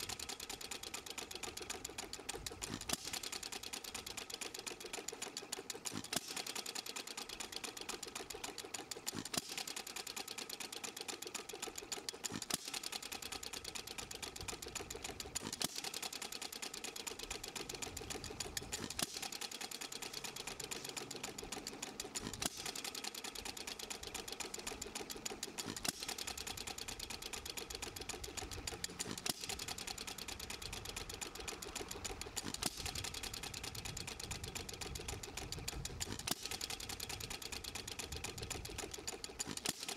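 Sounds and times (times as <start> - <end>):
hit-and-miss engine clatter: 0.0 - 39.9
engine firing crack: 11.8 - 39.9.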